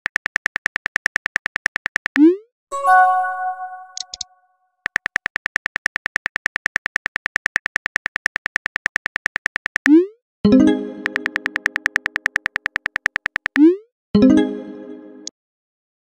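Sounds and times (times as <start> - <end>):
phone keyboard clicks: 0.0 - 2.2, 4.0 - 9.9, 11.0 - 13.6
brief chime: 2.7 - 4.2.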